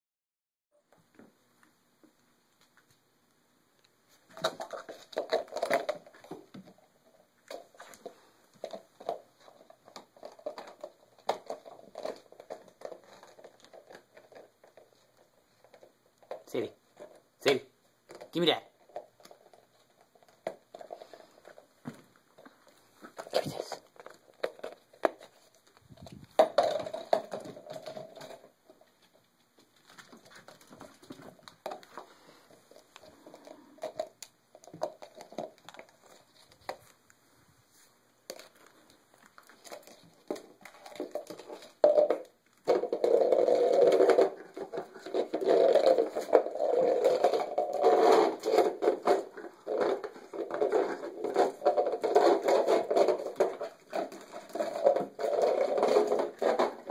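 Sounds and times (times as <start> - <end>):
bowl scraping on concrete: 42.8 - 56.9.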